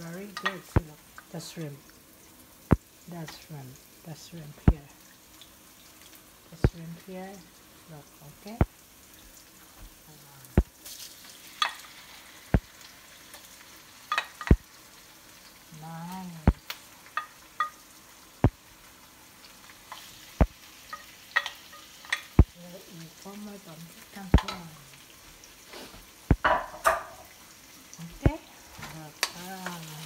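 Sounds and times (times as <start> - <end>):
food sizzling in a wok: 0.0 - 30.0
utensil clicking on a pan: 0.2 - 1.3, 14.1 - 14.7, 16.5 - 18.6, 19.9 - 22.6, 24.2 - 24.8, 29.1 - 30.0.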